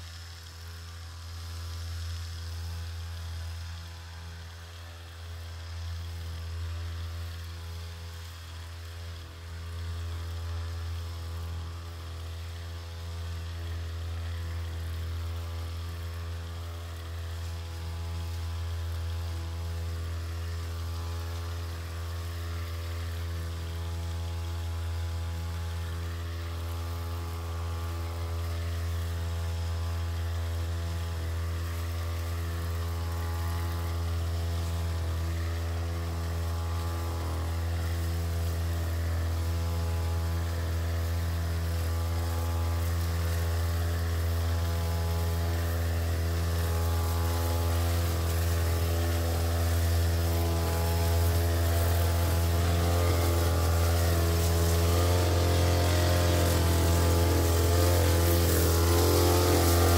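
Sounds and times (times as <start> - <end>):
backpack sprayer engine running: 0.0 - 59.9.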